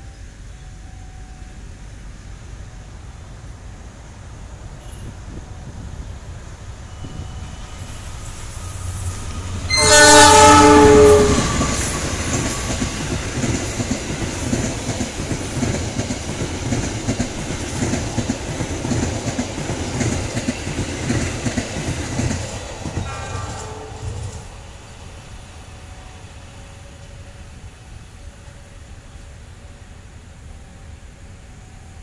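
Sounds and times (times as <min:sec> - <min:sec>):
train wheels rumbling: 0:00.0 - 0:32.0
locomotive horn blast: 0:09.7 - 0:12.7, 0:23.1 - 0:24.5
clickety-clack over rail joints: 0:11.1 - 0:24.7.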